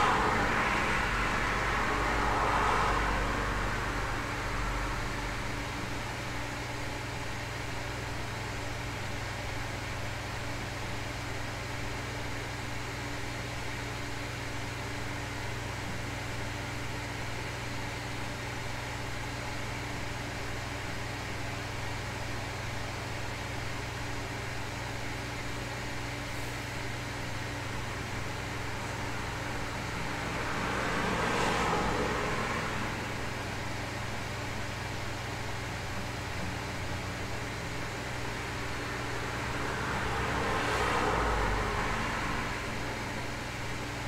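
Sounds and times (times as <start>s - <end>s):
passing car: 0.0s - 5.9s, 28.1s - 34.9s, 36.4s - 44.0s.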